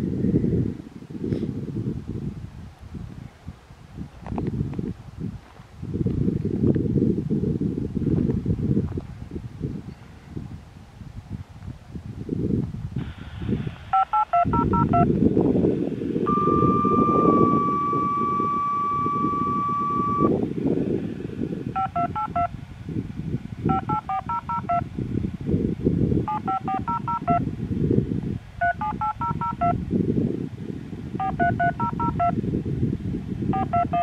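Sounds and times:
wind rumble on microphone: 0:00.0 - 0:34.0
long steady beep: 0:13.9 - 0:15.1, 0:16.2 - 0:20.4, 0:21.8 - 0:22.5, 0:23.7 - 0:24.9, 0:26.3 - 0:27.5, 0:28.6 - 0:29.8, 0:31.2 - 0:32.4, 0:33.5 - 0:34.0
touch-tone digits over radio: 0:13.9 - 0:15.1, 0:16.3 - 0:20.3, 0:21.8 - 0:22.5, 0:23.7 - 0:24.8, 0:26.3 - 0:27.4, 0:28.6 - 0:29.8, 0:31.2 - 0:32.4, 0:33.6 - 0:34.0.

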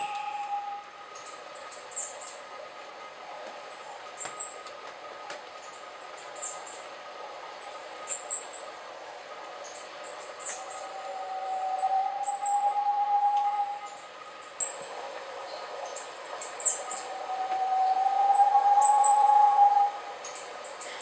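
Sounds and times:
long whistled bird note: 0:00.0 - 0:02.5, 0:09.6 - 0:21.0.

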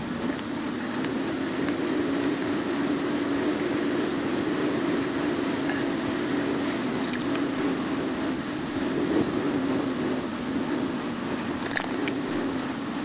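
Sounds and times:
bicycle rolling on asphalt: 0:00.0 - 0:13.0.

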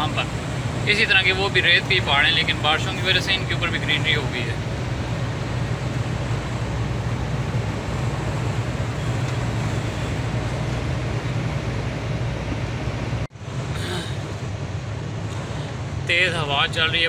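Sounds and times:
road and wind noise: 0:00.0 - 0:17.0
truck engine drone: 0:00.0 - 0:17.0.

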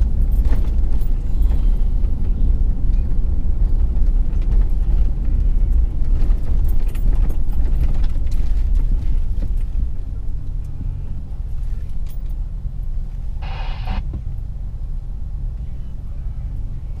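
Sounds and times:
car engine and road rumble: 0:00.0 - 0:17.0
short buzzy tone: 0:13.4 - 0:14.0.

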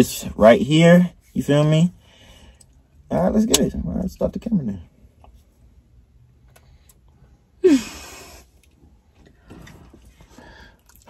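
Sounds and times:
person sighing loudly: 0:07.6 - 0:08.4.

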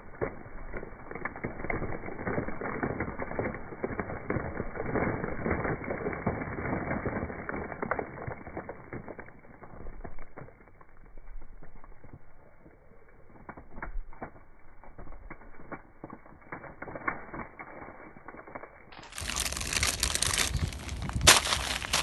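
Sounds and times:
feet crunching cheese puffs: 0:00.0 - 0:22.0.

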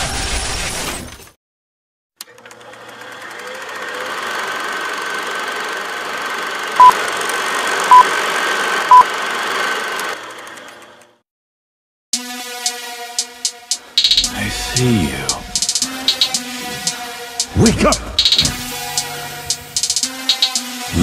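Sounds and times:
short high beeps: 0:14.0 - 0:14.8, 0:18.2 - 0:19.1.

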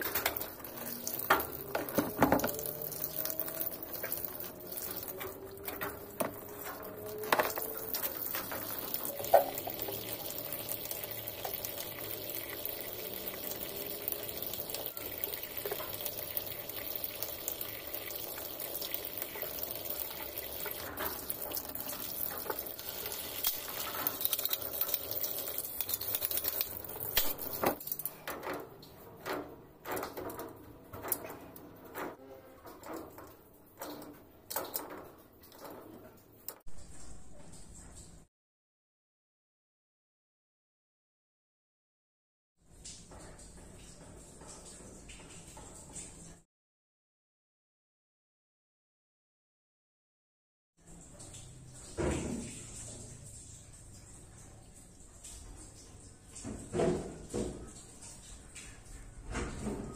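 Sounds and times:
water running from a tap: 0:00.0 - 0:29.0, 0:42.7 - 0:46.4, 0:50.8 - 0:59.9.

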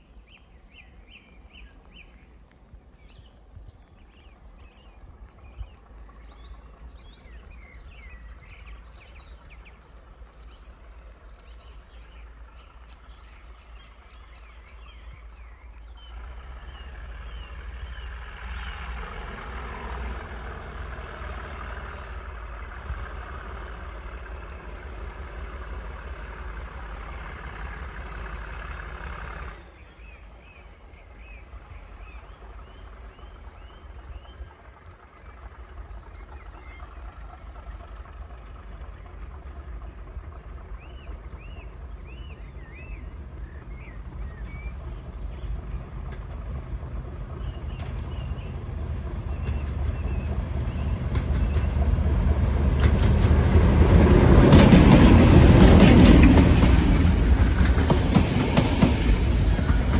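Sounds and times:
birds singing: 0:00.0 - 0:26.2, 0:27.1 - 0:59.9
low rumble of approaching train: 0:00.0 - 0:59.9
diesel train running past: 0:03.0 - 0:59.9.

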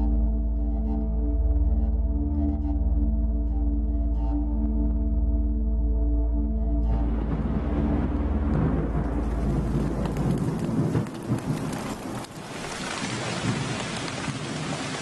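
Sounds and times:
heavy rain pouring: 0:06.9 - 0:15.0
low rumble of thunder: 0:06.9 - 0:15.0.

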